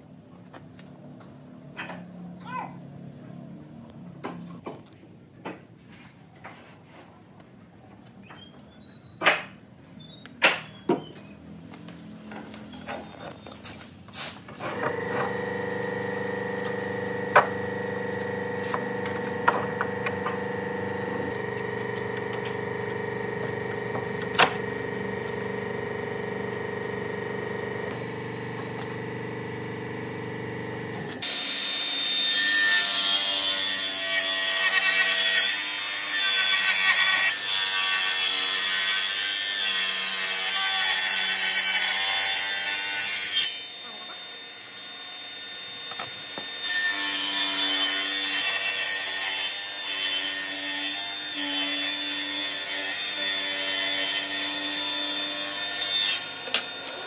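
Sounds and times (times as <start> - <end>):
table saw ripping wood: 13.8 - 43.7, 45.9 - 57.0
power tool motor humming: 14.6 - 32.3.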